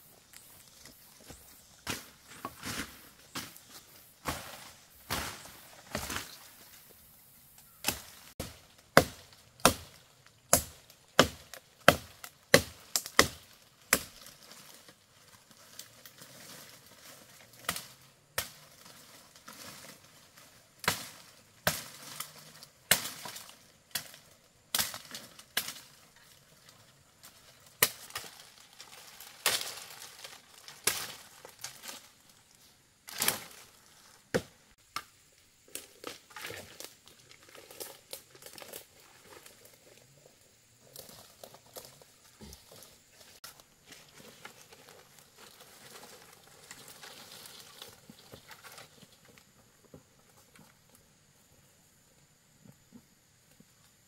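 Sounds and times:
blade chopping wood: 7.8 - 14.2.

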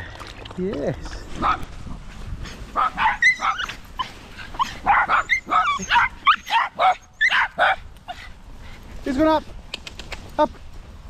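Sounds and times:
small dog barking and yipping: 2.8 - 8.2.

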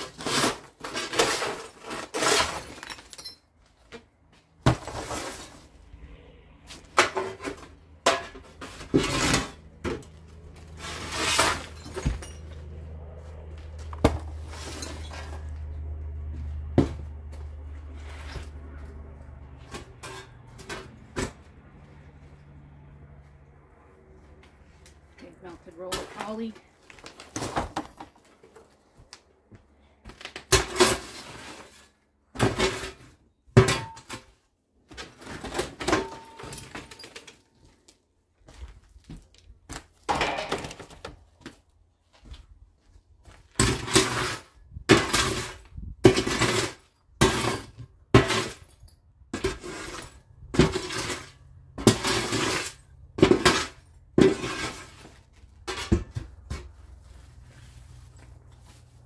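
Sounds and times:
debris clattering and crashing: 0.0 - 4.0, 4.6 - 5.8, 6.8 - 12.6, 30.2 - 37.7, 40.0 - 41.2, 43.5 - 56.4.

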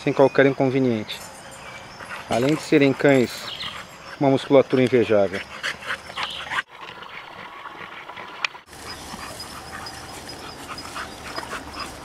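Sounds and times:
dog panting: 0.4 - 12.0.

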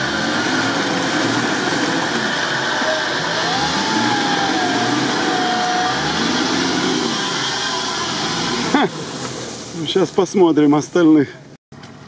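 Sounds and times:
whine: 0.0 - 8.8
tyres churning through mud: 0.0 - 11.2
off-road vehicle engine under load: 0.0 - 12.0.

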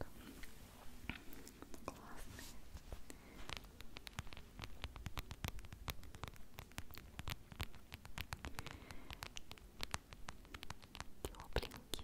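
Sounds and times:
fur rubbing on microphone: 2.0 - 6.4.

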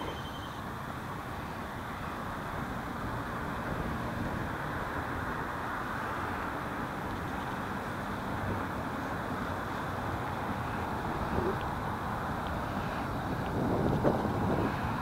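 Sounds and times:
city road traffic rumble: 0.0 - 15.0.

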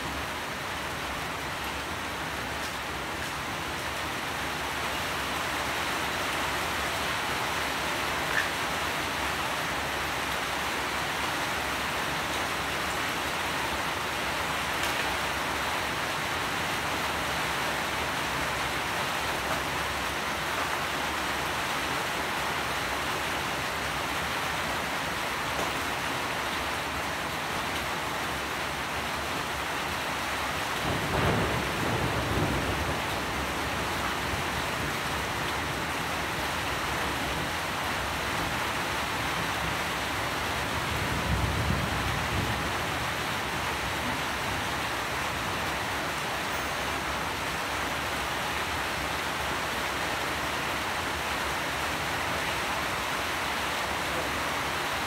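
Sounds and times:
heavy rain hissing: 29.9 - 38.4
low rumble of thunder: 30.8 - 34.0, 40.9 - 42.9.

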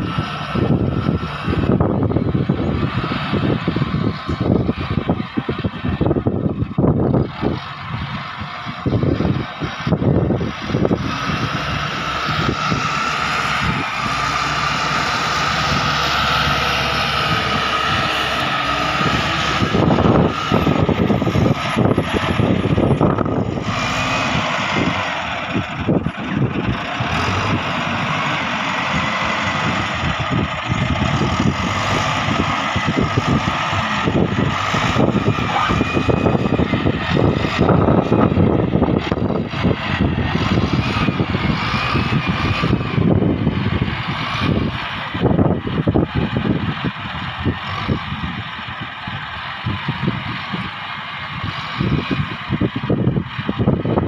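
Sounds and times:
diesel engine running: 0.0 - 54.0
high whine: 12.4 - 46.6.

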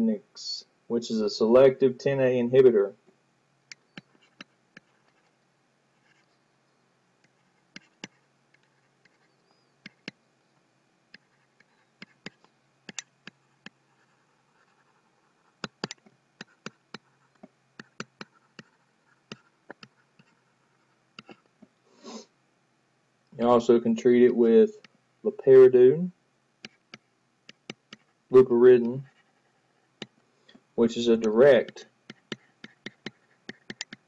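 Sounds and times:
stylus pen tapping on tablet: 9.8 - 10.2, 15.6 - 18.7, 26.6 - 28.1, 32.1 - 34.0.

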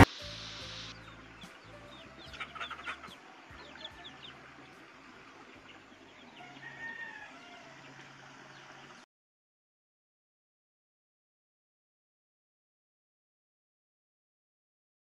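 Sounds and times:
chickens clucking and chirping: 0.0 - 9.1.

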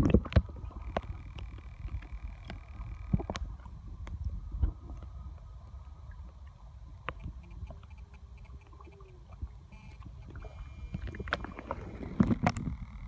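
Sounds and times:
underwater clicks and knocks: 0.0 - 5.1, 10.0 - 13.0
underwater rumble of moving water: 0.0 - 13.0.

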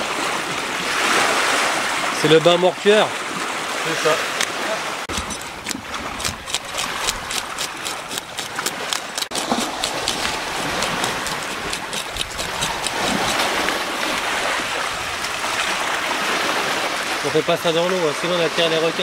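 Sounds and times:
water lapping the shore: 0.0 - 19.0
metal scaler scraping fish scales: 5.1 - 15.6.

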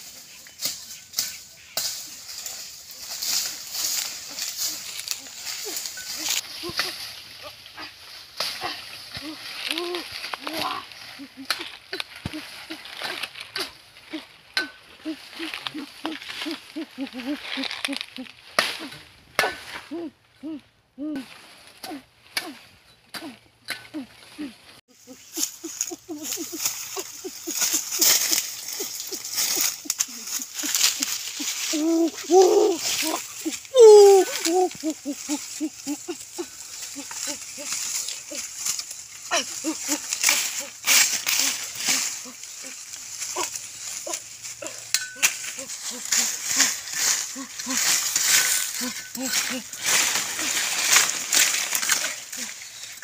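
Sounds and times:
dry leaves swept by hand: 0.0 - 14.4, 24.4 - 53.0
machete chopping branches: 17.2 - 19.9, 36.1 - 53.0.

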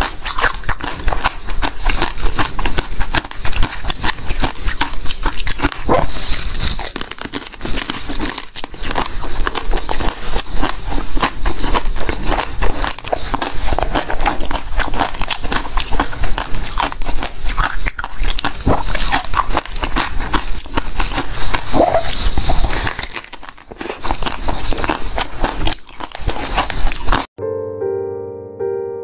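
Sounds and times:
fig being chewed: 0.0 - 27.3
electric piano music: 27.4 - 29.0.

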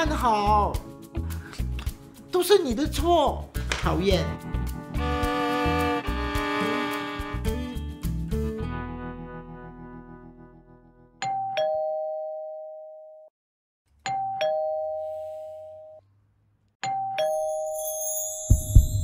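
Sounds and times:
two-tone doorbell chime: 14.1 - 16.0, 16.9 - 19.0.

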